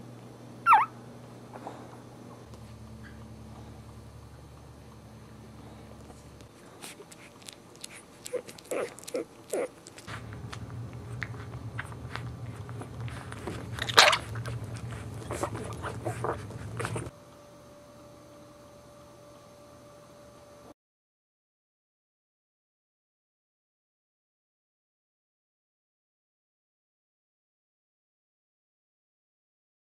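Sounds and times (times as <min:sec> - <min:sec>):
puppy squeaks: 0:00.6 - 0:00.9
puppies suckling wet smacks: 0:06.4 - 0:17.1.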